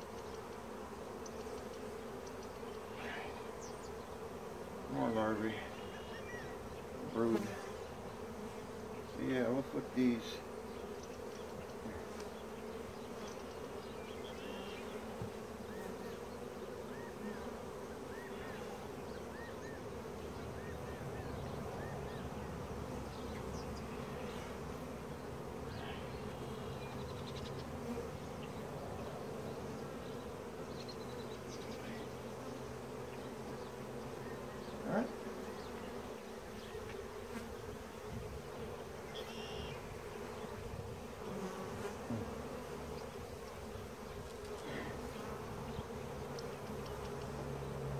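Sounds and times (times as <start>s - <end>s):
honey bees buzzing: 0.0s - 47.9s.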